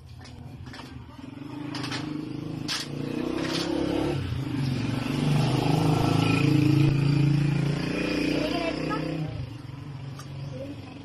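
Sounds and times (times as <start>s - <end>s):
vehicle engine running: 0.0s - 7.7s.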